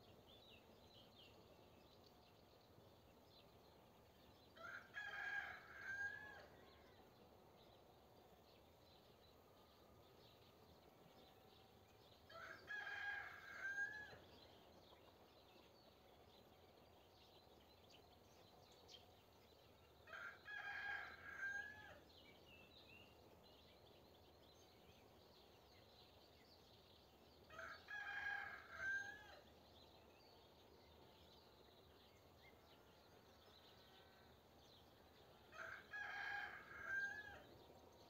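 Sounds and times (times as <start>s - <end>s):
rooster crowing: 4.6s - 6.7s, 12.3s - 14.2s, 20.1s - 22.0s, 27.5s - 29.4s, 35.5s - 37.5s.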